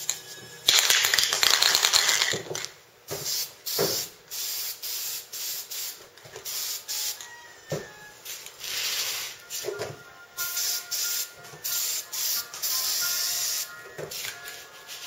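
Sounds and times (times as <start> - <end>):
spray paint can hissing: 0.7 - 2.4, 3.1 - 7.2, 8.3 - 9.7, 10.4 - 15.0.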